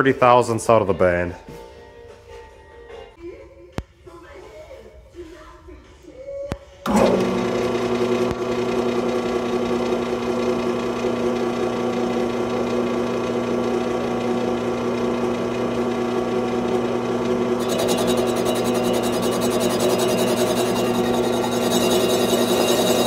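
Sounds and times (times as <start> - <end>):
metal lathe humming: 6.9 - 23.0.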